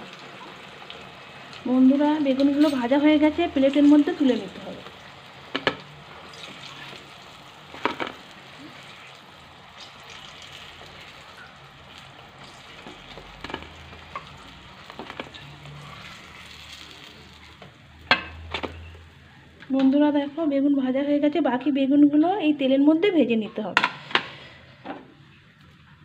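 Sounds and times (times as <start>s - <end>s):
food sizzling in hot oil: 0.0s - 19.3s.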